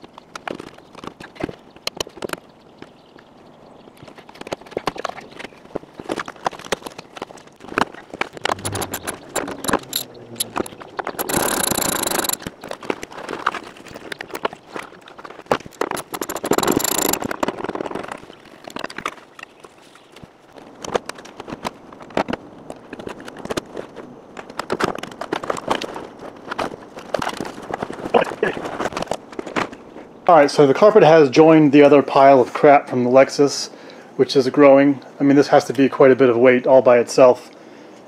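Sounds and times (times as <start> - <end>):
metal tools clinking and rattling: 8.5 - 12.5, 15.7 - 17.3
socket ratchet clicking: 8.5 - 12.5, 15.8 - 17.3.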